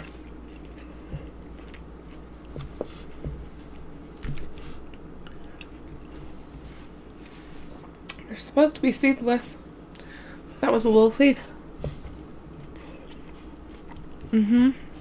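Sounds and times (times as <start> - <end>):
person chewing grapes: 0.0 - 8.2, 12.4 - 15.0.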